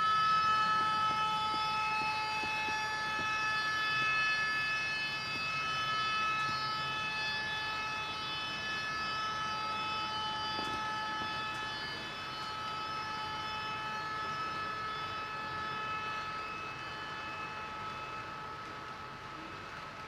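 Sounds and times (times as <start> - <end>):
model locomotive whine: 0.0 - 20.0.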